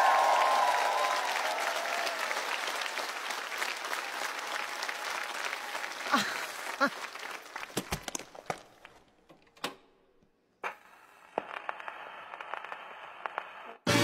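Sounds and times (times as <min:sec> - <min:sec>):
audience applause: 0:00.0 - 0:08.3.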